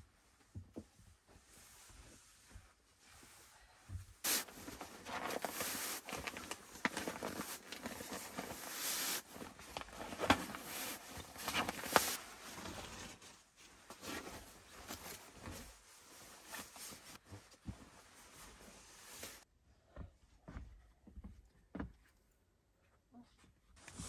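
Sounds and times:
nylon sleeping bag rustling: 4.2s - 19.5s.

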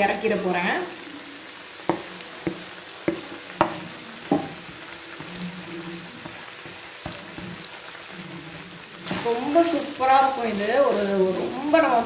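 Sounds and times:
food sizzling in a frying pan: 0.0s - 12.0s
wooden spatula knocking on pan: 1.8s - 5.4s, 6.2s - 7.8s.

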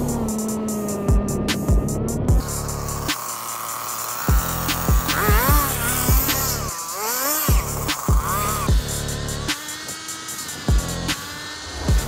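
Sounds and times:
electronic beat with kick drums: 0.0s - 3.2s, 7.4s - 9.7s
gliding synth line: 0.0s - 12.0s.

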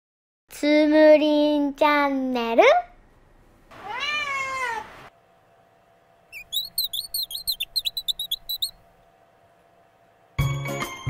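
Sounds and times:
cat meowing: 3.7s - 4.9s
small bird chirping: 6.3s - 8.8s.

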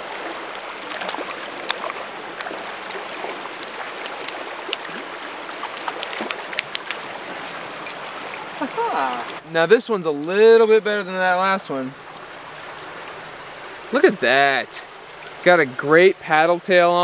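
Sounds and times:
creek flowing: 0.0s - 17.0s
fish splashing at surface: 0.8s - 8.3s.

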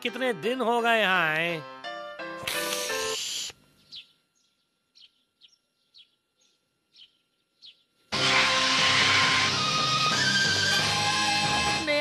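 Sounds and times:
high bird chirps: 3.0s - 7.9s
loud music: 8.2s - 12.0s.

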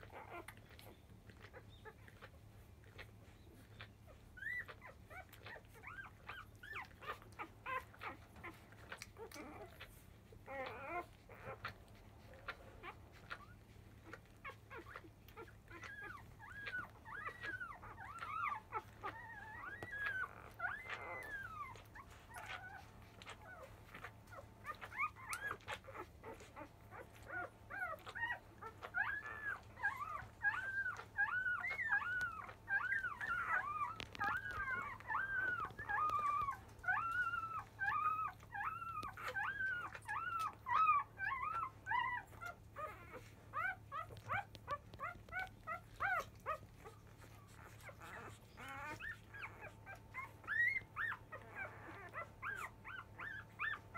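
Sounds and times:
puppies squealing and whimpering: 0.0s - 53.9s.

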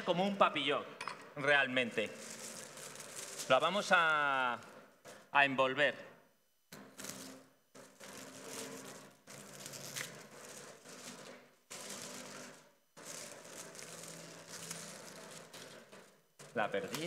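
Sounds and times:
paper wrapper crinkling: 2.0s - 4.5s, 8.0s - 15.8s.

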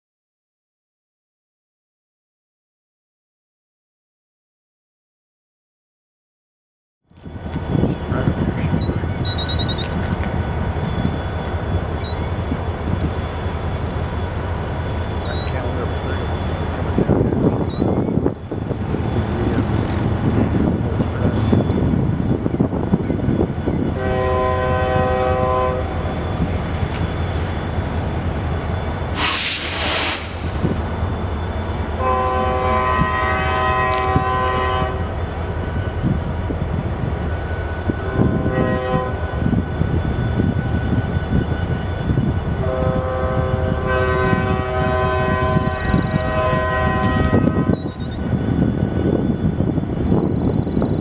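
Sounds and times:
locomotive air horn blasts: 23.9s - 26.0s, 32.0s - 35.1s, 38.0s - 39.4s, 42.6s - 47.7s
brief hiss: 29.1s - 30.6s.

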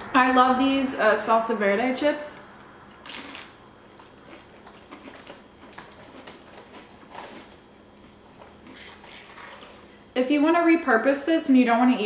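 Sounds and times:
chip crunching: 2.9s - 9.5s
chewing mouth sounds: 3.0s - 10.0s.

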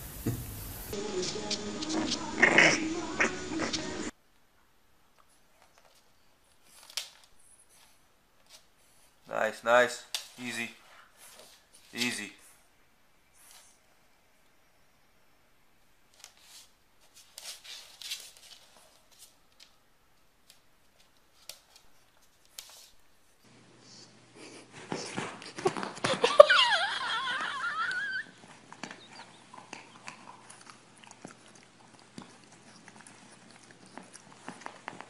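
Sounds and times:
dog crying with wavering pitch: 26.3s - 28.4s.

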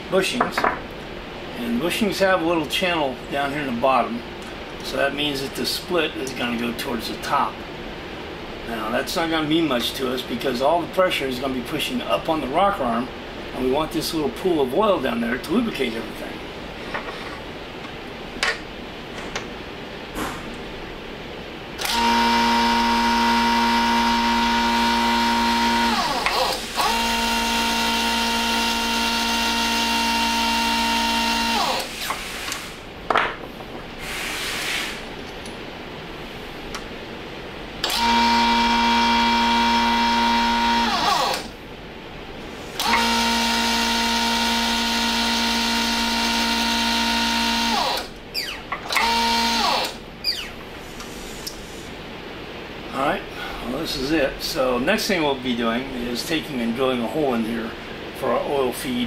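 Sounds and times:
electric motor humming: 21.8s - 32.1s, 37.8s - 41.5s, 42.7s - 50.5s.

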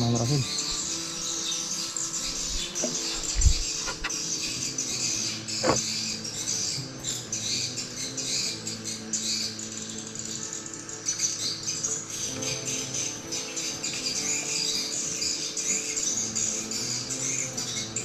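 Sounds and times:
small birds chirping: 0.0s - 18.0s
dull thump: 5.6s - 5.8s.

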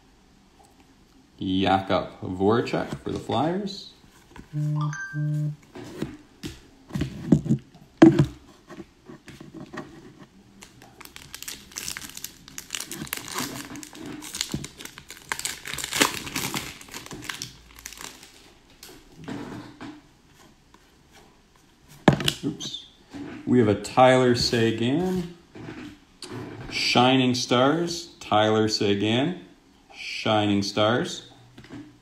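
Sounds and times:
foil wrapper tearing and crinkling: 10.6s - 18.5s.

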